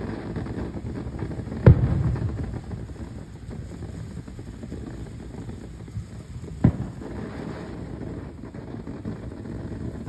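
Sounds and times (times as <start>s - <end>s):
firework fountain rushing: 0.0s - 10.0s
sharp pop: 1.6s - 2.4s.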